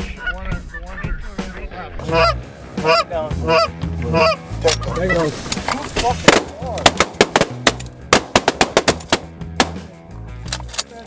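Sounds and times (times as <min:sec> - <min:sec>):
goose honking: 0:02.0 - 0:05.4.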